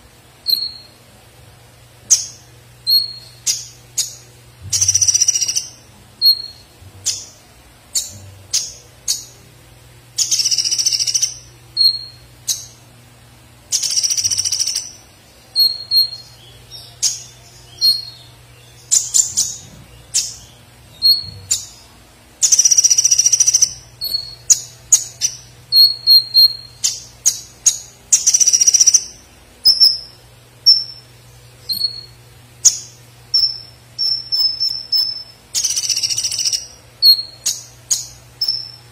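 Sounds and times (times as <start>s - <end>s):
bird buzzy high trills: 13.7s - 38.9s.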